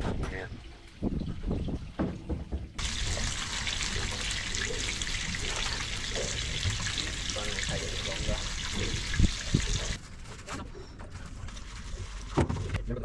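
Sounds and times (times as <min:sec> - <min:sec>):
fish frying in hot oil: 0:02.8 - 0:10.0.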